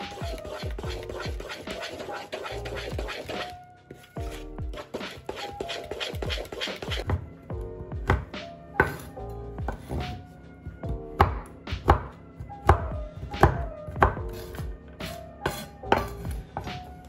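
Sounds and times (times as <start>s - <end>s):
knife chopping on wooden board: 8.0s - 9.1s, 11.2s - 14.5s, 15.5s - 16.8s.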